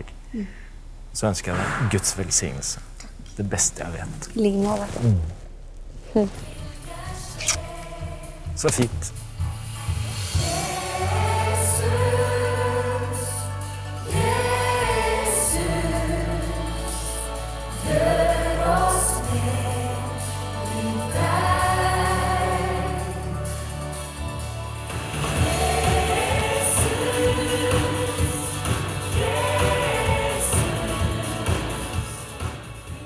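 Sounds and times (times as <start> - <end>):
held bass notes: 0.0 - 33.0
woman singing lead: 6.2 - 8.5, 25.3 - 32.2
choir singing: 10.4 - 33.0.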